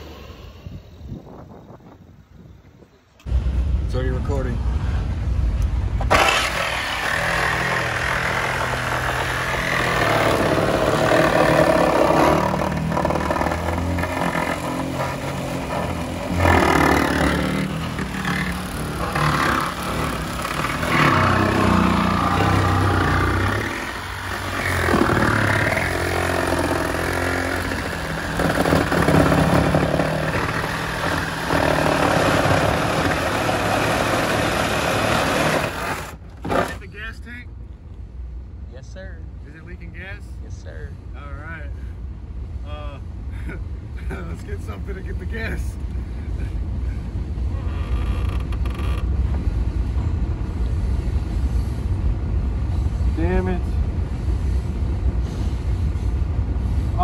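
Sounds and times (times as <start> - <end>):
reciprocating saw cutting metal: 6.0 - 36.8.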